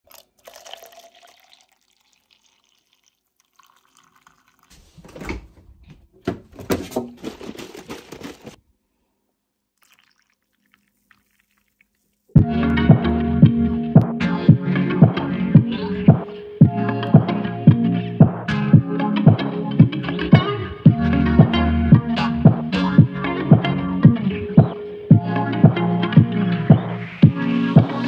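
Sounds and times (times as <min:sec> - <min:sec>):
coffee trickling into cup: 0:00.1 - 0:04.8, 0:09.8 - 0:12.4
fridge door opening: 0:04.7 - 0:08.6
knocks and rattles: 0:04.8 - 0:08.6
music: 0:12.4 - 0:28.0.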